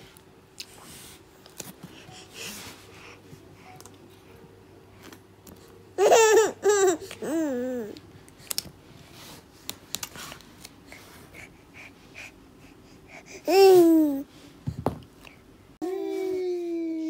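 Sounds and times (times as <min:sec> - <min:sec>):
baby breathing softly: 0:00.7 - 0:04.4, 0:10.8 - 0:14.6.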